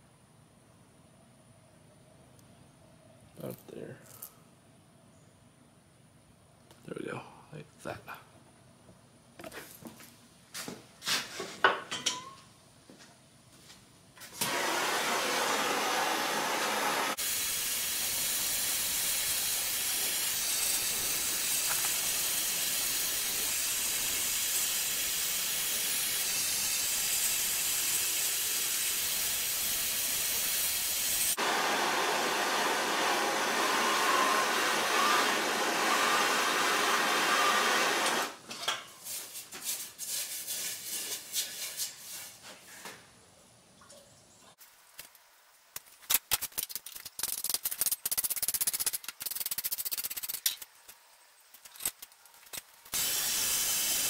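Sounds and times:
gas torch hissing: 0:14.4 - 0:38.4, 0:52.9 - 0:54.0
crackling and clicking: 0:44.9 - 0:53.0.

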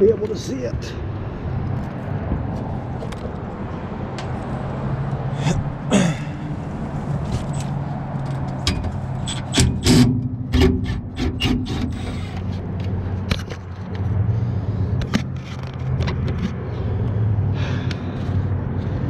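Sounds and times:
metallic clanks of tools: 0:08.6 - 0:11.8.

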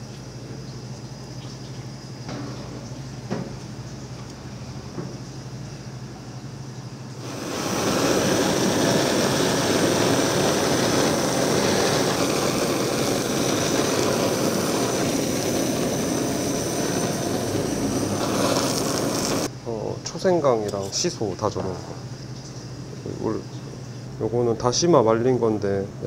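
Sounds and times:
blowtorch hissing: 0:07.2 - 0:19.5.

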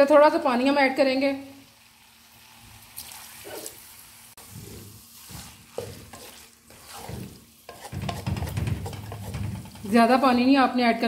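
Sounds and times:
light frying sizzle: 0:00.0 - 0:11.0
spatula scraping metal pan: 0:04.4 - 0:10.5.

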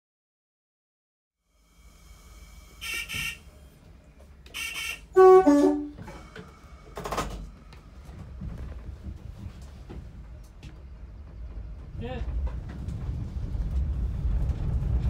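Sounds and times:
diesel engine rumble: 0:01.5 - 0:15.0
train horn: 0:02.7 - 0:03.6, 0:04.5 - 0:06.1.

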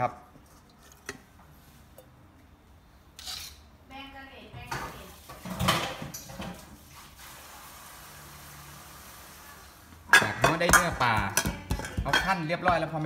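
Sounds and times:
metal pot and utensils clattering: 0:04.8 - 0:06.7, 0:10.1 - 0:13.0.

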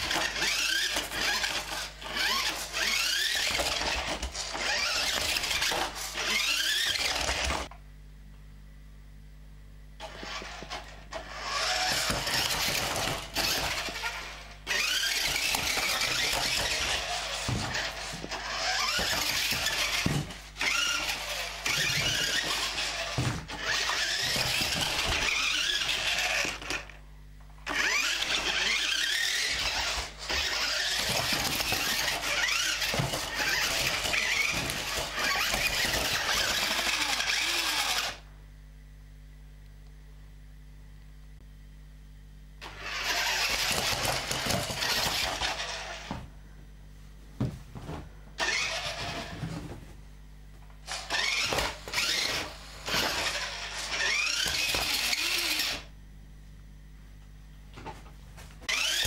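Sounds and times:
toy car motor whining: 0:00.0 - 0:07.7, 0:10.0 - 0:27.0, 0:27.6 - 0:38.2, 0:42.6 - 0:46.1, 0:48.4 - 0:49.5, 0:50.8 - 0:55.9, 0:58.6 - 0:59.0.

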